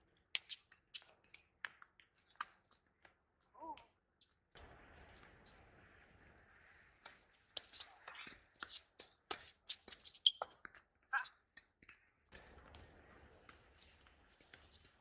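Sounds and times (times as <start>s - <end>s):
footsteps and shoe scuffs: 7.4s - 10.8s.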